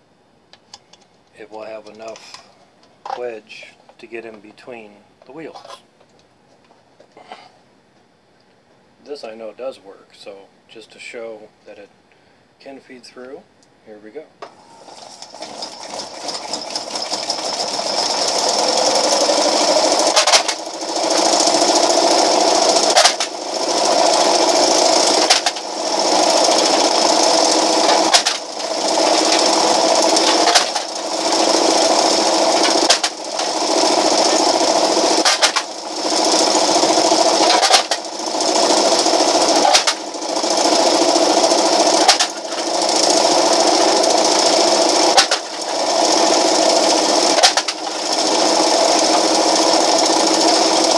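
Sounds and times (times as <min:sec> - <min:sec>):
electric motor whir: 0:14.5 - 0:50.9.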